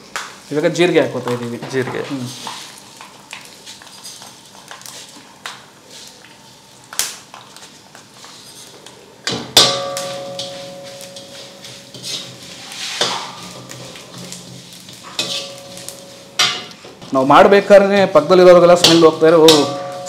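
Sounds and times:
spices sizzling in oil: 0.0 - 20.0
pan ringing: 9.6 - 12.4, 15.0 - 16.7, 18.5 - 20.0
ladle knocking on metal pan: 18.8 - 20.0.

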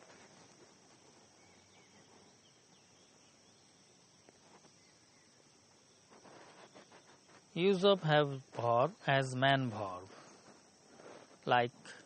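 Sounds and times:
faint background hiss: 0.0 - 12.0
person narrating: 7.6 - 10.1.

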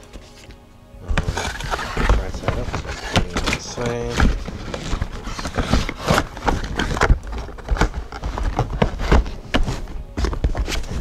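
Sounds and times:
cardboard box handled: 1.1 - 11.0.

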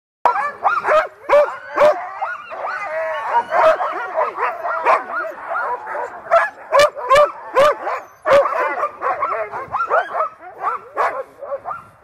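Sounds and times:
dogs barking and yelping: 0.2 - 12.0.

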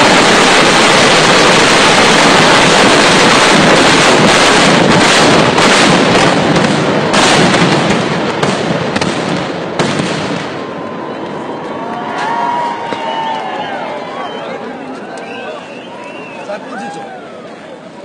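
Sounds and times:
firecrackers exploding: 0.0 - 11.1, 12.0 - 13.8.

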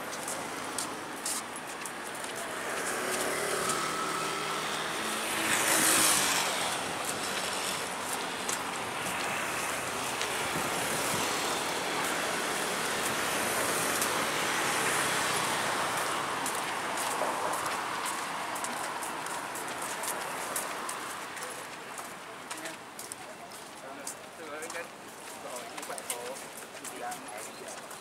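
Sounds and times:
road traffic rushing past: 0.0 - 23.0
vehicle passing close: 2.3 - 19.5.

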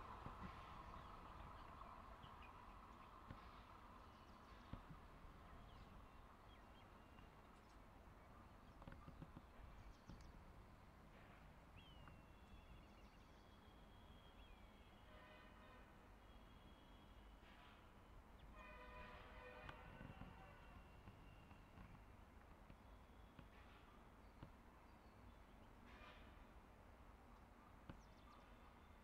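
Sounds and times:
faint high chirps and whistles: 11.8 - 15.5, 16.2 - 17.7
distant train horn: 14.8 - 17.8, 18.4 - 21.8.

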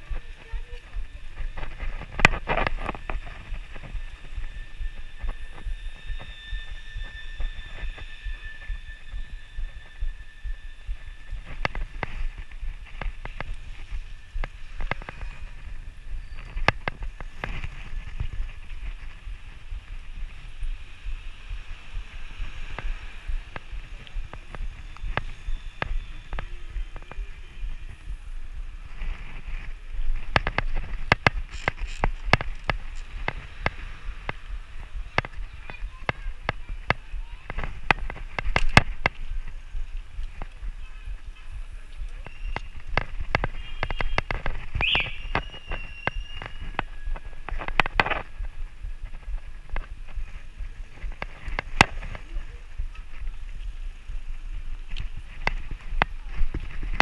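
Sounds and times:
low rumble of road vibration: 0.0 - 57.0
wind on microphone: 0.0 - 57.0
bike frame and basket rattling: 29.0 - 33.4.

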